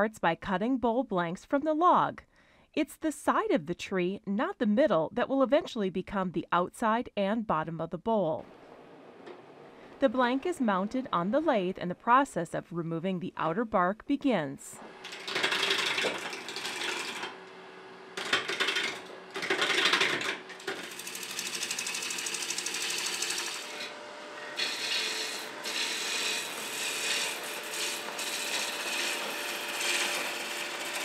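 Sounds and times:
lathe tool scraping wood: 14.8 - 17.5, 18.2 - 31.0.

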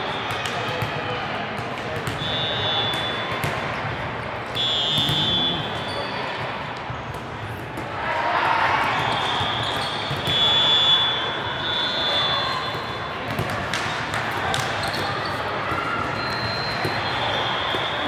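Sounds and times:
chatter of players and spectators: 0.0 - 18.0
referee whistle blasts: 2.2 - 3.3, 4.6 - 6.2, 9.0 - 13.1, 16.2 - 18.0
volleyballs being struck: 4.9 - 5.6.

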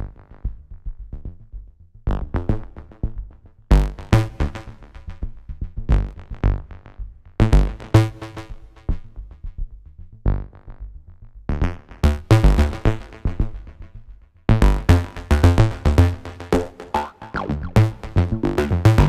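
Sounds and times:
drum machine kicks and percussion: 0.0 - 15.9, 16.6 - 19.0
synth arpeggio: 16.6 - 19.0.

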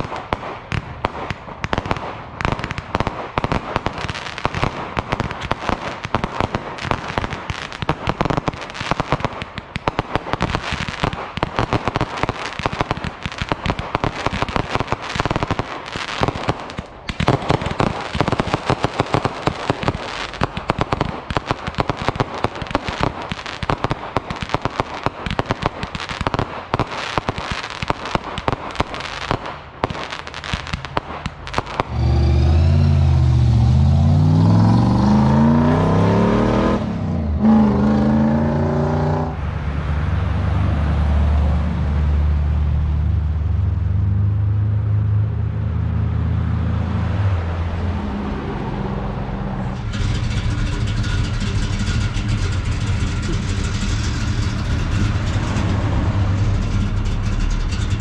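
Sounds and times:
fireworks crackling: 0.0 - 38.4, 48.2 - 58.0
car engine pulling away: 31.5 - 58.0.

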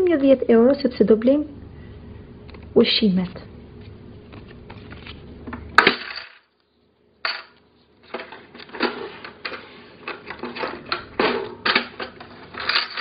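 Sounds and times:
plastic toy coins clattering: 6.0 - 6.5, 11.9 - 13.0.

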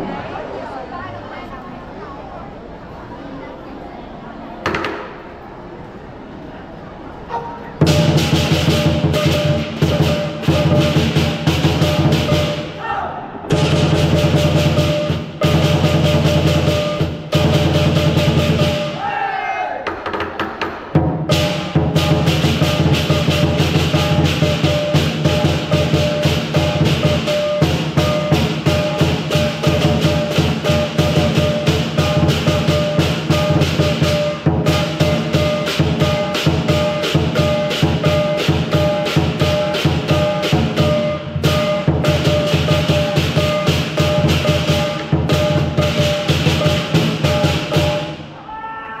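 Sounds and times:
large drum beaten fast: 7.8 - 12.8, 13.5 - 19.0, 20.9 - 48.2
hand cymbals clashing: 7.9 - 12.8.

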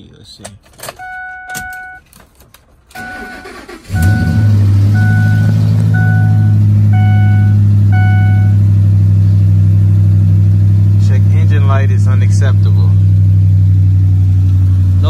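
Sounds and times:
dashboard warning chime: 1.0 - 2.1, 2.9 - 8.7
engine starter cranking: 2.9 - 6.2
engine idling: 2.9 - 15.0.

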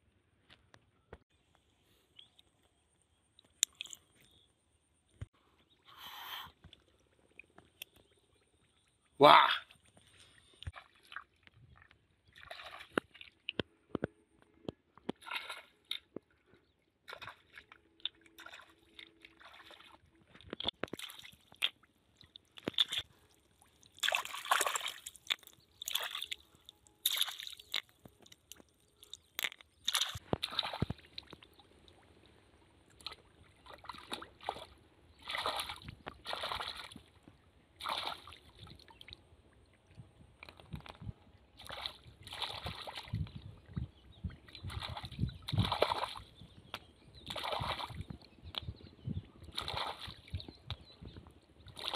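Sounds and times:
hands splashing in muddy water: 23.9 - 31.5, 33.0 - 37.1, 37.8 - 39.1, 41.6 - 43.4, 44.6 - 46.4, 47.2 - 48.7, 49.5 - 50.9, 51.7 - 51.9.

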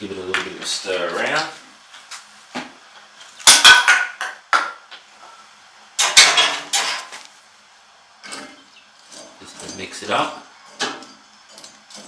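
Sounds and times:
hand tool clattering on metal: 9.1 - 12.0.

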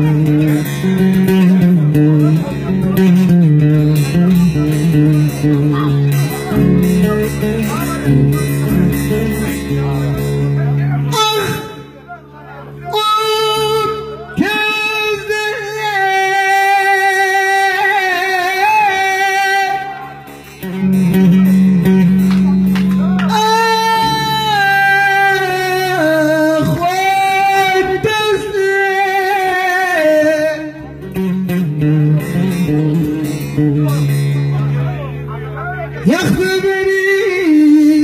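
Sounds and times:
man singing into a microphone: 0.0 - 9.8, 10.7 - 12.0, 12.8 - 22.2, 23.2 - 34.4, 35.7 - 38.0
plucked long-necked lute: 0.0 - 38.0.

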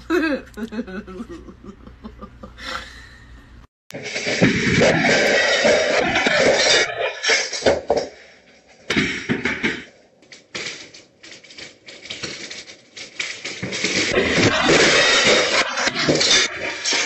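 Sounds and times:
floor tiles cracking and popping: 3.9 - 17.0
dense crackling: 8.9 - 17.0.

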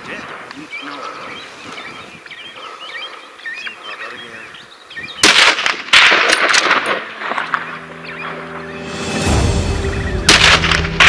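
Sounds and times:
rifle shots with ringing echo: 5.2 - 7.6, 10.2 - 11.0.

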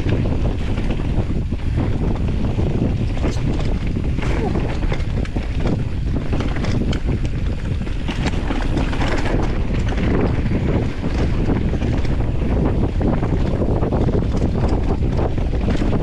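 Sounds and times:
bike rattling and clicking: 0.0 - 16.0
tyre noise on dirt: 0.0 - 16.0
wind buffeting microphone: 0.0 - 16.0.

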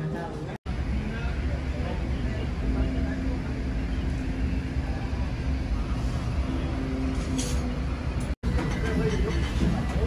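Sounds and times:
faint background chatter: 0.0 - 7.6.

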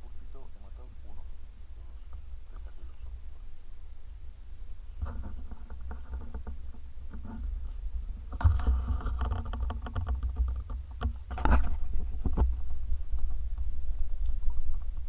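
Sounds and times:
low rumble on microphone: 0.0 - 15.0
dry branches crackling and snapping: 4.6 - 15.0.

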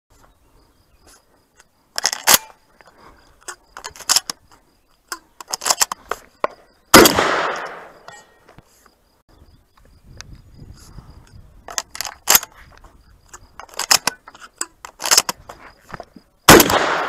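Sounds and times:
shotgun metallic clicks: 3.4 - 8.2, 11.3 - 12.6, 13.3 - 15.4
loud gunshot: 6.9 - 7.9, 16.5 - 17.0.

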